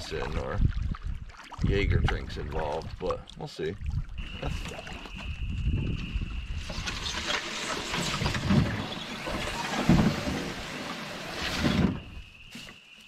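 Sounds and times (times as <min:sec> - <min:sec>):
canoe hull scraping through grass: 0:06.4 - 0:13.0.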